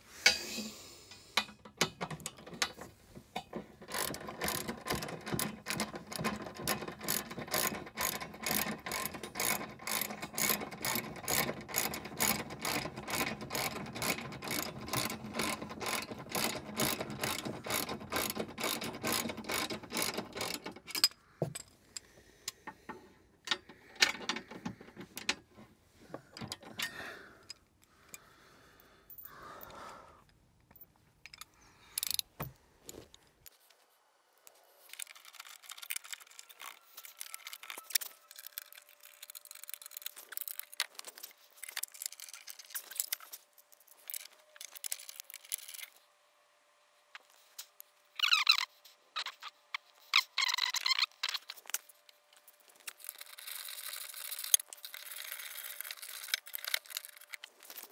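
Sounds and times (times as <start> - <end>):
ratchet wrench clicking: 3.8 - 21.1.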